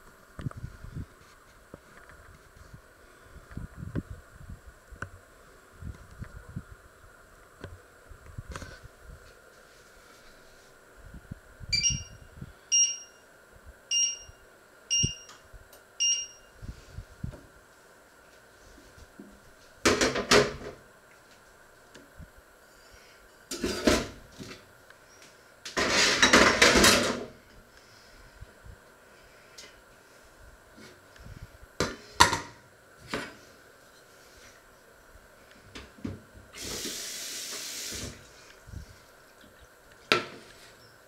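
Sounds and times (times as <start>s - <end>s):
hob touch control beeps: 11.7s - 13.2s, 13.9s - 15.4s, 16.0s - 16.5s.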